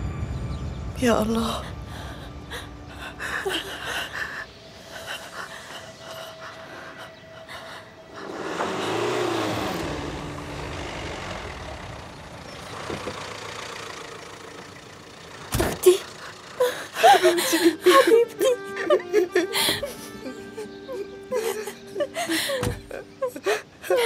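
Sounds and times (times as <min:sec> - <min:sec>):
car driving up and stopping: 0:08.1 - 0:17.9.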